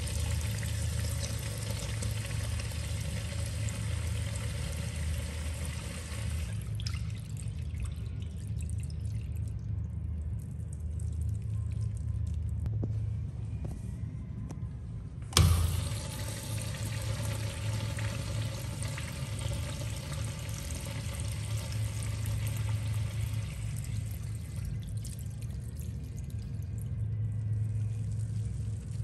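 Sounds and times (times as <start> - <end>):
water rushing through urinal: 0.0 - 9.2, 15.4 - 29.0
low hum: 0.0 - 29.0.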